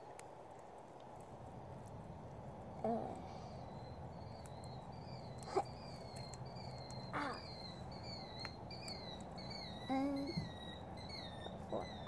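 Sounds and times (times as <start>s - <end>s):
low steady hum: 0.0s - 12.0s
small animal chirping: 2.7s - 12.0s.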